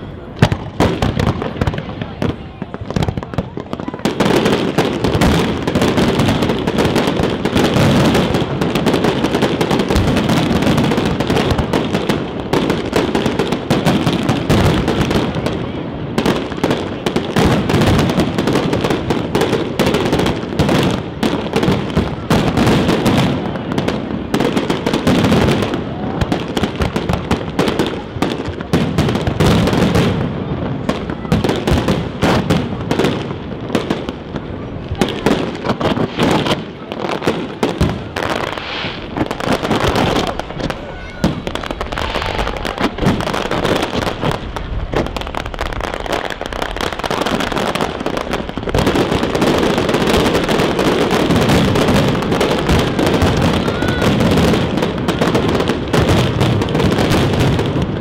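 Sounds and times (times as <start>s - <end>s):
fireworks bursting and crackling: 0.0s - 58.0s.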